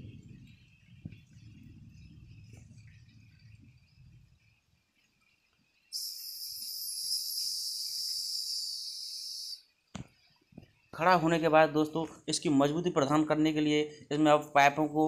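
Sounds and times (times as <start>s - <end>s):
high-pitched hiss: 1.0s - 12.1s.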